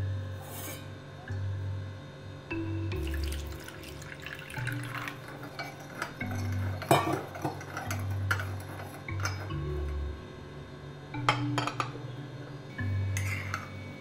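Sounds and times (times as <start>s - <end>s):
water pouring into cup: 3.0s - 7.8s.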